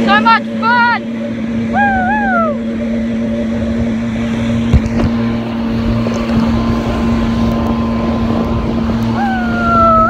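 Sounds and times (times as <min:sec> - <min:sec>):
jet ski engine drone: 0:00.0 - 0:10.0
wind and water rushing: 0:00.0 - 0:10.0.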